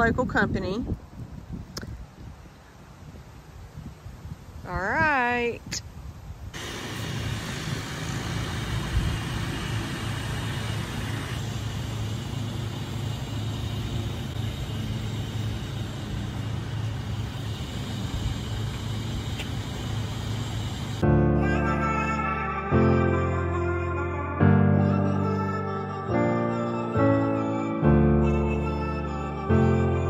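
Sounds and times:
forklift engine running: 0:06.6 - 0:21.2
music: 0:21.0 - 0:30.0.

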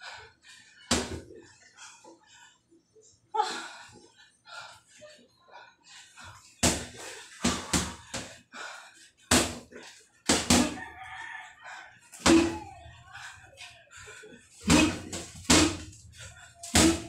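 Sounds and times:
boxing gloves punching heavy bag: 0:06.6 - 0:08.3, 0:09.3 - 0:09.7, 0:10.3 - 0:10.8, 0:12.2 - 0:12.7, 0:14.6 - 0:16.0, 0:16.6 - 0:17.0.

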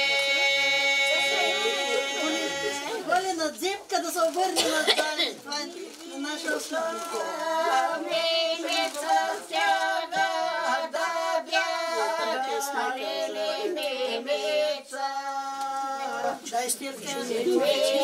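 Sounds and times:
women singing unaccompanied: 0:00.0 - 0:03.1, 0:06.2 - 0:18.0.

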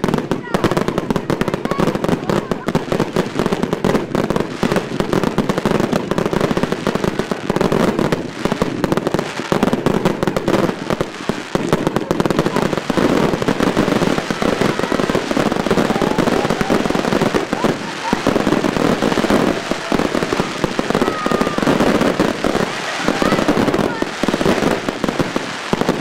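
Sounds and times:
fireworks bangs and crackling: 0:00.0 - 0:26.0.

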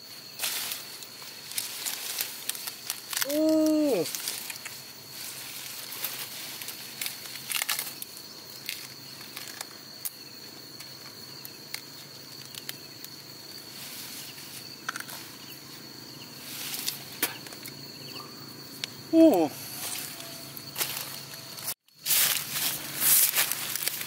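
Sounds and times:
corn stalks and leaves rustling: 0:00.0 - 0:17.8, 0:19.2 - 0:24.0
high insect drone: 0:00.0 - 0:24.0
stalks snapping: 0:01.5 - 0:04.8, 0:06.6 - 0:10.2.

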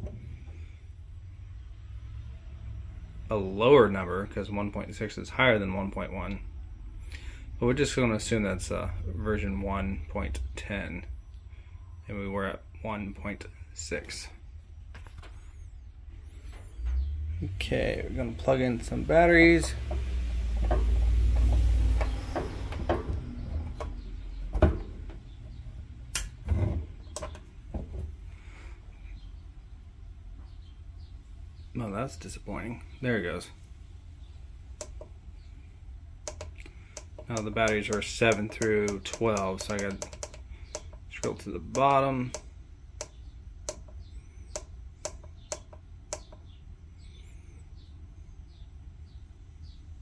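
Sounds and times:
steady low hum: 0:00.0 - 0:50.0
faint bird chirps: 0:10.0 - 0:12.1, 0:38.6 - 0:49.9
clicks and knocks from handling: 0:26.2 - 0:28.1, 0:36.3 - 0:44.0.

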